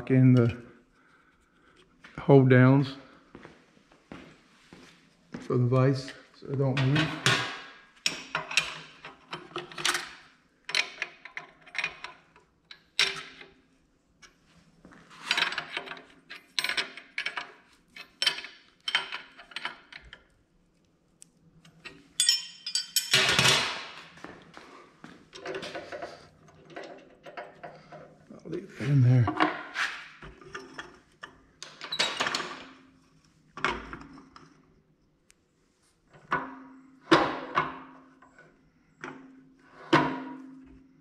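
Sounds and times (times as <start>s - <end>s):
metal tools clinking: 21.8s - 23.6s.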